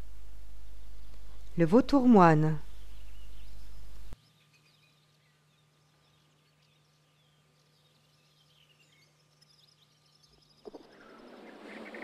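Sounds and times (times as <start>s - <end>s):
low hum: 0.0s - 12.0s
distant small birds chirping: 0.1s - 12.0s.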